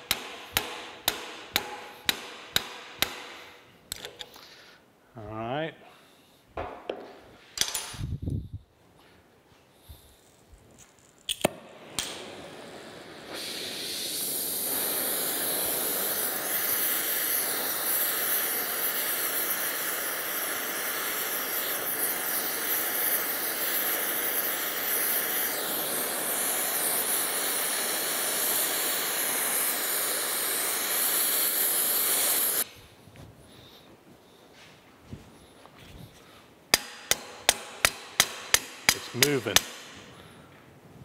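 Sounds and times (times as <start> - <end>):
gas torch flame hissing: 11.2 - 32.8, 36.8 - 40.4.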